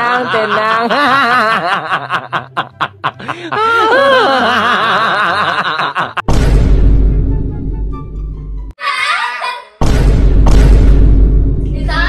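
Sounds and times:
person laughing: 0:00.0 - 0:06.2.

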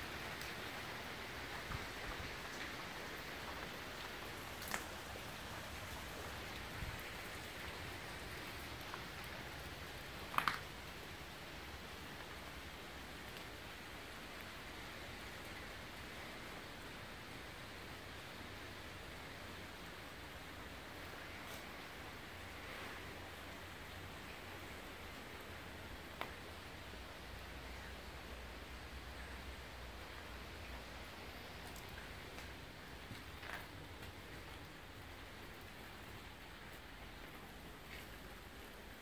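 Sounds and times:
rain hissing: 0:00.0 - 0:39.0
light ticks: 0:26.1 - 0:26.4.

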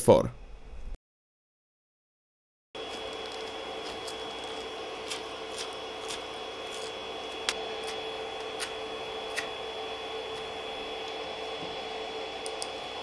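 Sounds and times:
cooling fan humming: 0:02.8 - 0:13.0.

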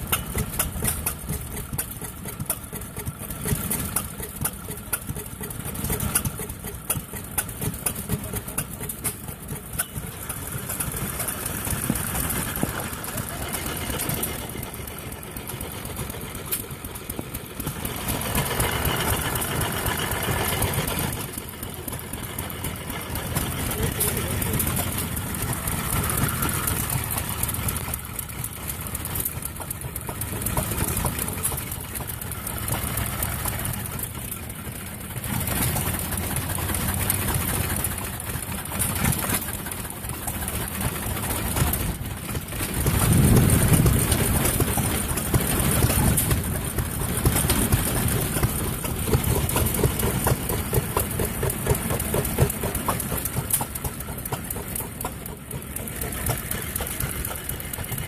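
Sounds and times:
stationary engines popping: 0:00.0 - 0:58.0
low rumble: 0:42.7 - 0:46.7.

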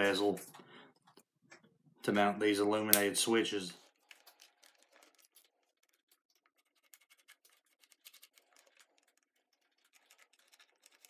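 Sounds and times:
pointed tool scratching plastic: 0:03.8 - 0:11.0.

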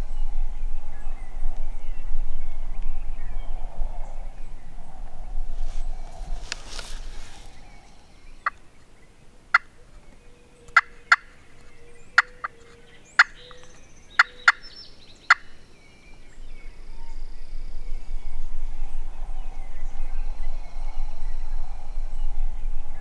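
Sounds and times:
turkey calling: 0:06.2 - 0:08.9, 0:09.5 - 0:15.6.

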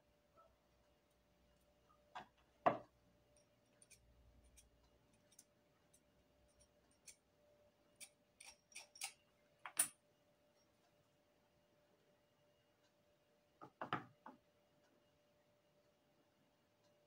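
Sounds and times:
metal tools scraping wax: 0:03.4 - 0:07.2.

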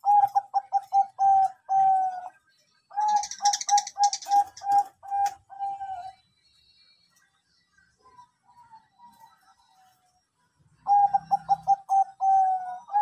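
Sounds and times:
dove cooing: 0:00.0 - 0:06.2, 0:10.8 - 0:13.0
high bird chirping: 0:02.9 - 0:10.0, 0:10.8 - 0:13.0.

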